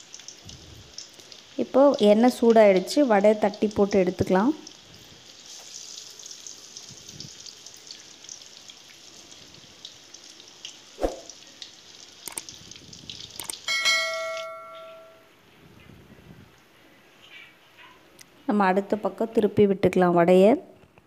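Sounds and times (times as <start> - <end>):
oil sizzling and crackling: 0.0 - 15.3
bell-like chime: 13.7 - 15.3
metal clink: 13.7 - 15.3.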